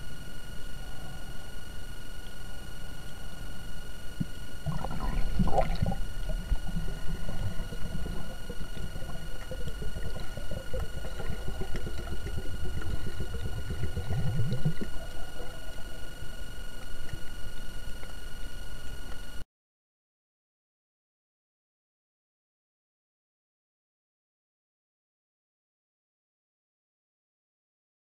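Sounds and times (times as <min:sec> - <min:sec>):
high electronic whine: 0:00.0 - 0:19.4
creaking pulsed sound: 0:00.2 - 0:19.1
underwater rumble: 0:00.9 - 0:19.0
water gurgling: 0:04.6 - 0:18.0.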